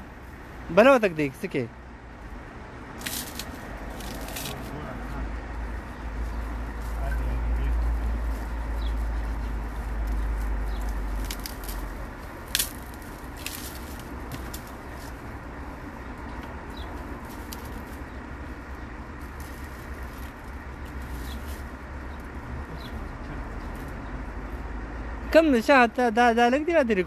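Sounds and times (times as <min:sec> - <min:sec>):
dry leaves and twigs rustling: 0:02.9 - 0:24.7
twig snapping: 0:10.8 - 0:14.8.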